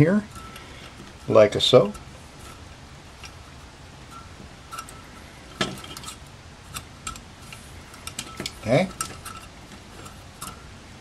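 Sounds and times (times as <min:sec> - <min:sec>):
metallic clicks of small parts: 0:04.2 - 0:10.7.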